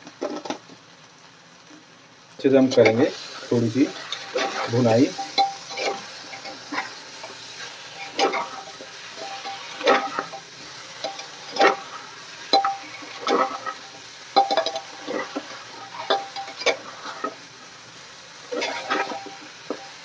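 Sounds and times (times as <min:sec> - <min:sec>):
low sizzle of frying: 0:00.0 - 0:20.0
spatula scraping a pot: 0:03.8 - 0:17.4, 0:18.5 - 0:19.8.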